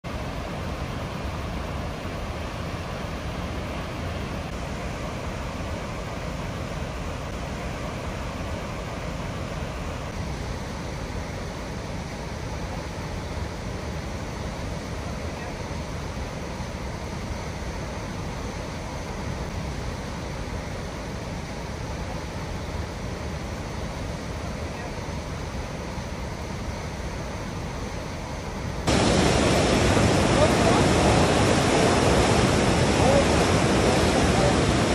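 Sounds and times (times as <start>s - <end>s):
waterfall rushing with deep rumble: 0.1s - 34.9s
whitewater rushing through gorge: 28.9s - 34.9s.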